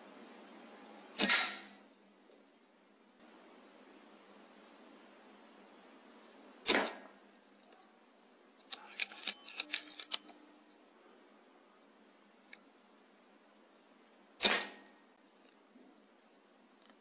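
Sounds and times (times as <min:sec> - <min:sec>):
air rifle shot: 0:01.2 - 0:01.8, 0:06.6 - 0:07.2, 0:14.4 - 0:14.9
small scratching clicks: 0:08.6 - 0:10.8.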